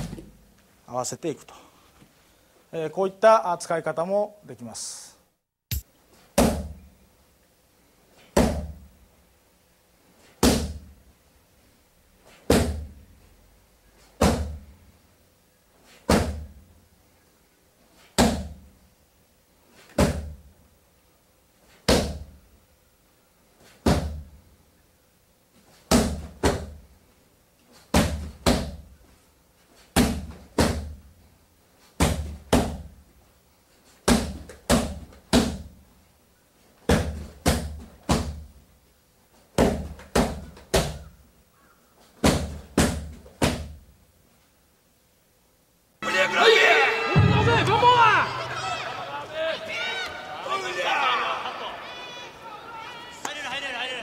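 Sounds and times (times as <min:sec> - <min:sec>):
kicks slapping a kick shield: 0:06.4 - 0:06.8, 0:08.4 - 0:08.8, 0:10.4 - 0:10.9, 0:12.5 - 0:12.9, 0:14.2 - 0:14.6, 0:16.1 - 0:16.5, 0:18.2 - 0:18.6, 0:20.0 - 0:20.4, 0:21.9 - 0:22.3, 0:23.8 - 0:24.3, 0:25.9 - 0:26.8, 0:27.9 - 0:28.8, 0:30.0 - 0:31.0, 0:32.0 - 0:32.9, 0:34.0 - 0:35.7, 0:36.9 - 0:38.5, 0:39.6 - 0:41.0, 0:42.2 - 0:43.8.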